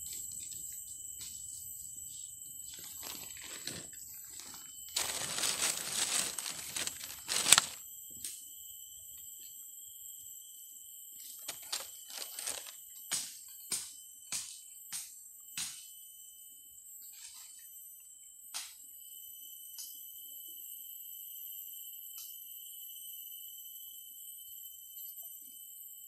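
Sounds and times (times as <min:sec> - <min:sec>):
high-pitched insect drone: 0:00.0 - 0:13.0, 0:18.9 - 0:26.0.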